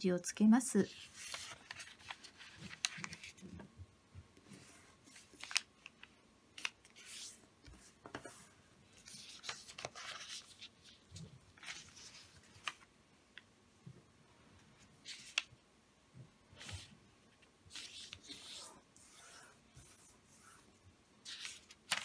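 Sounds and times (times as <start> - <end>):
paper rustling and sliding: 0.9 - 3.5, 4.5 - 12.9, 16.6 - 16.9, 17.7 - 22.0
paper crinkles and taps: 1.3 - 3.7.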